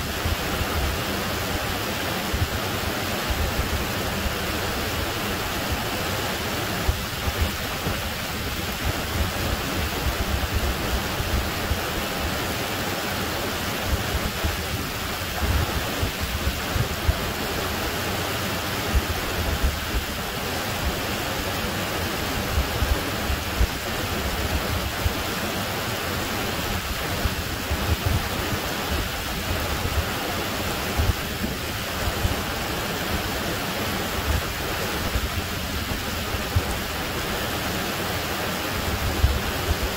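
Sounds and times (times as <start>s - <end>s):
water rushing over rocks: 0.0s - 39.9s.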